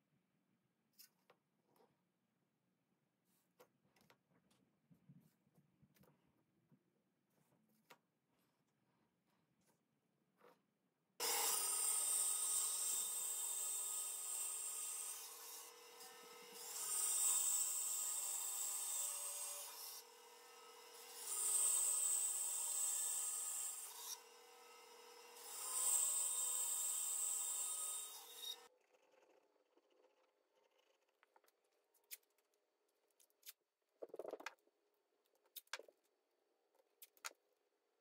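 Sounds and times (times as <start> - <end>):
bandsaw cutting wood: 11.2 - 28.7.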